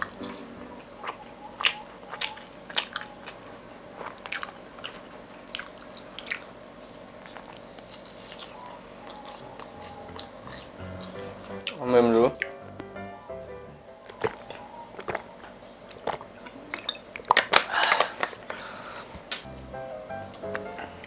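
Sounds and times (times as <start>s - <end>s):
chewing crunchy fried dough: 0.0s - 11.8s, 14.0s - 18.5s.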